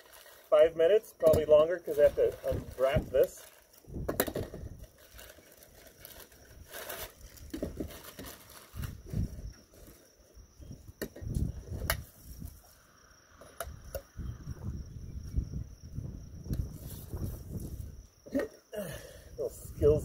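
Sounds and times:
plastic wrapping crinkling: 0.0s - 0.6s, 1.5s - 4.0s, 4.6s - 10.0s
wind gusting on microphone: 2.0s - 5.0s, 8.7s - 9.6s, 10.4s - 12.7s, 13.7s - 18.2s, 19.3s - 20.0s.

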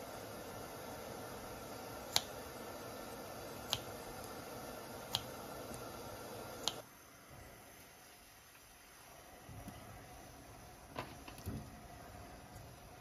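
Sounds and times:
low steady hiss: 0.0s - 13.0s.

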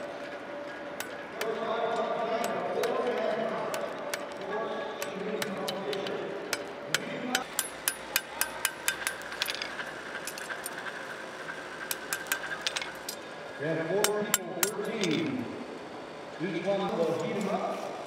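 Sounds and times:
hammers striking steel on anvils: 5.0s - 10.5s, 11.9s - 13.2s, 14.0s - 15.3s.

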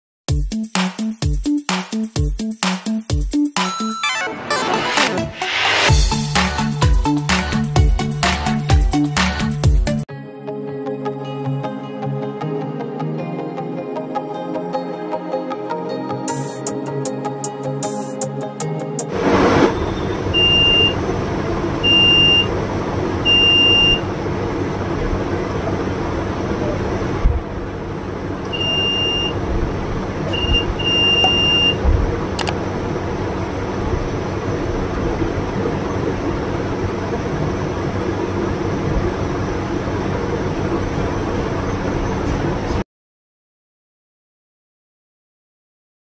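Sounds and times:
multimeter continuity beeps: 20.3s - 21.0s, 21.8s - 22.5s, 23.2s - 24.1s, 28.5s - 29.4s, 30.3s - 31.8s.

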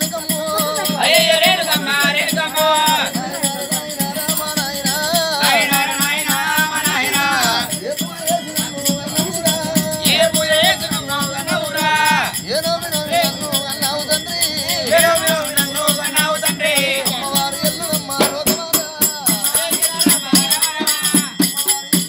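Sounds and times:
shaken rattle beat: 0.0s - 22.0s.

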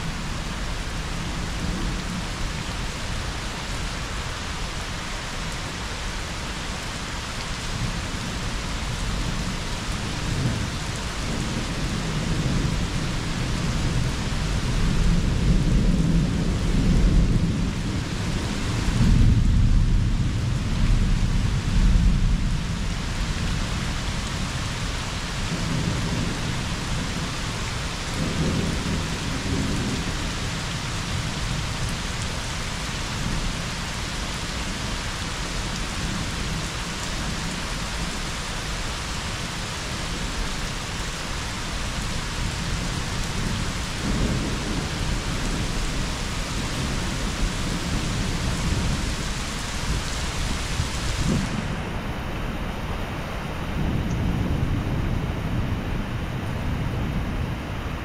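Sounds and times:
steady rain: 0.0s - 58.0s
low rolling thunder: 9.0s - 23.9s, 25.4s - 32.3s, 42.3s - 53.0s, 53.6s - 57.5s.

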